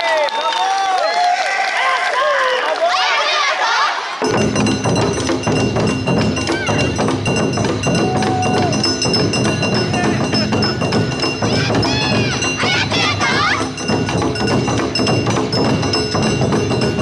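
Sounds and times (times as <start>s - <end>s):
drums beating: 4.2s - 17.0s.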